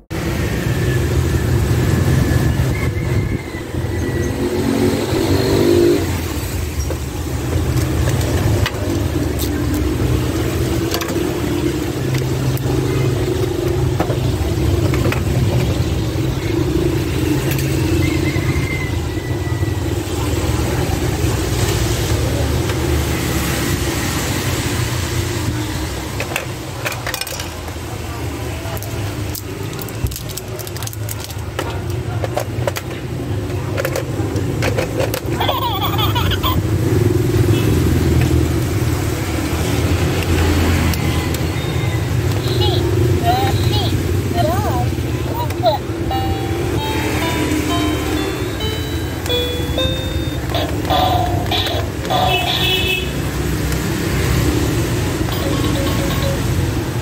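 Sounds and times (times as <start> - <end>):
street traffic rumble: 0.0 - 57.0
plastic toy and cardboard box handled: 28.8 - 35.4.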